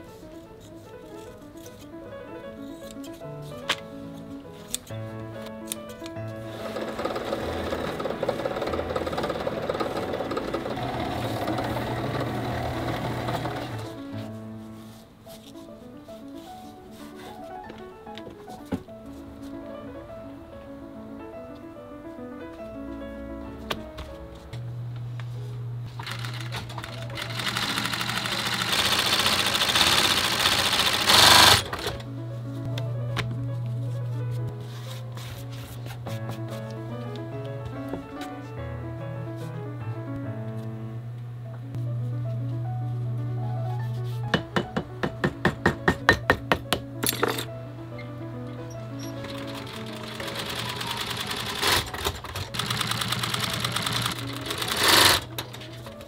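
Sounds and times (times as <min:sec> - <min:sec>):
sewing machine stitching leather: 0:06.4 - 0:14.1, 0:25.9 - 0:32.0, 0:49.0 - 0:56.0.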